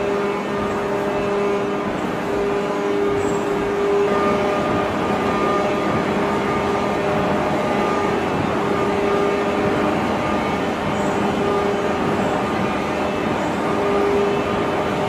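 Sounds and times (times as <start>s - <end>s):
heavy machinery drone: 0.0s - 15.0s.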